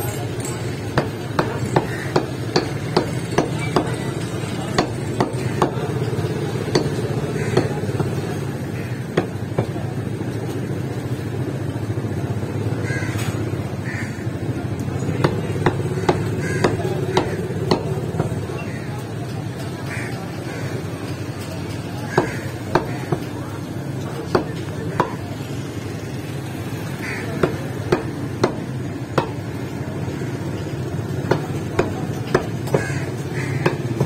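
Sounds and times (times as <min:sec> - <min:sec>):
cleaver chopping on wood block: 0:15.2 - 0:18.4, 0:22.1 - 0:23.3, 0:27.4 - 0:29.4, 0:33.6 - 0:34.0.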